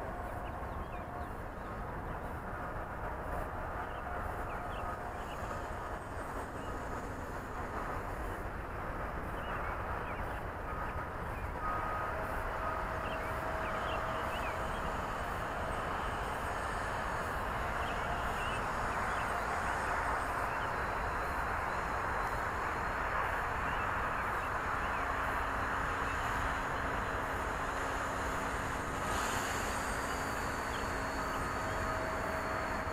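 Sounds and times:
steady rushing noise: 0.0 - 32.9
quadcopter motors buzzing: 11.7 - 32.9.

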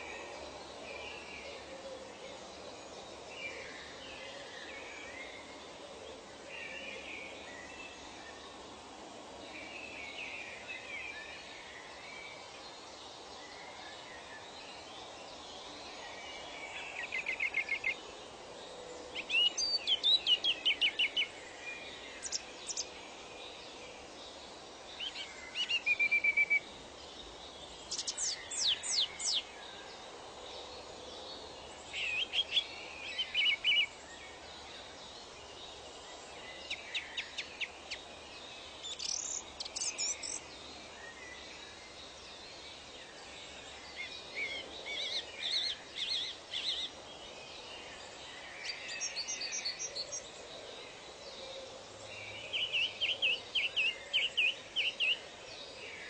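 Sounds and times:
background hiss: 0.0 - 56.0
birds chirping and trilling: 19.1 - 23.0, 24.4 - 29.5, 36.4 - 56.0.

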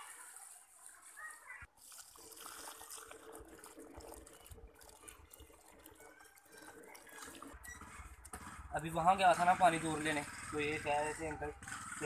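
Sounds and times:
water pouring onto soil: 0.0 - 8.2.

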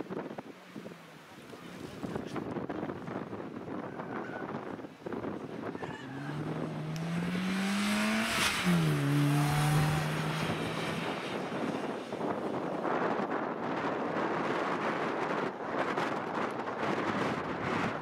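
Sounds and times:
rally car passing by: 6.0 - 12.7.

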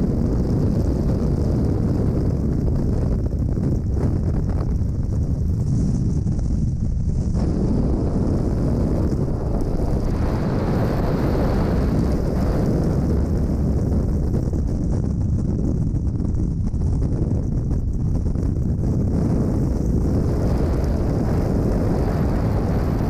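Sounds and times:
wind rushing on microphone: 0.0 - 23.0.

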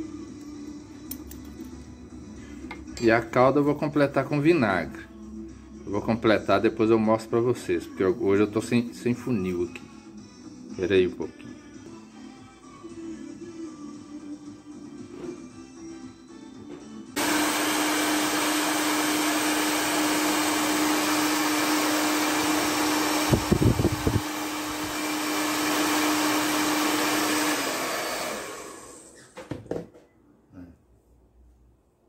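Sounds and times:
hair dryer humming: 17.2 - 29.3.

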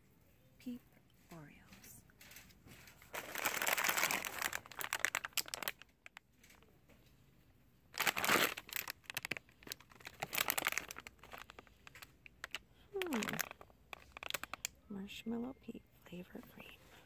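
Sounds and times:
plastic package crinkling: 2.2 - 6.7, 7.9 - 14.9.

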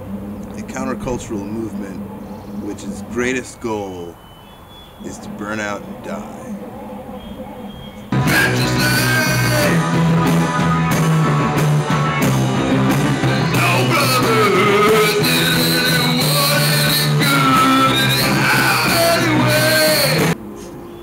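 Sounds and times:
live band music: 8.1 - 20.4
man singing into microphone: 8.2 - 10.0, 13.5 - 20.4.

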